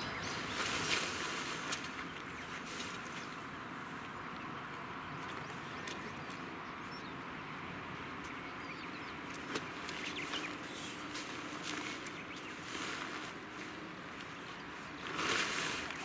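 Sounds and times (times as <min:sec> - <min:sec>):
tent fabric rustling: 0:00.4 - 0:03.4, 0:09.4 - 0:16.0
tent poles clicking: 0:00.6 - 0:03.3, 0:09.3 - 0:16.0.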